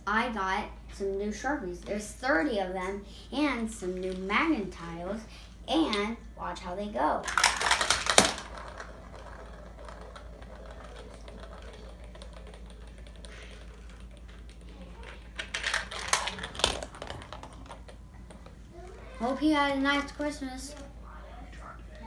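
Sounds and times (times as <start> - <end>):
marble rattling along plastic tracks: 7.2 - 18.6.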